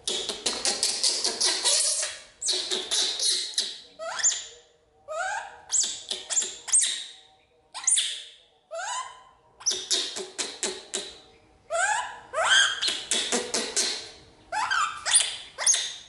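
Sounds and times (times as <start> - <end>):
baby monkey screaming: 1.2 - 4.4, 11.7 - 13.0, 14.5 - 15.9.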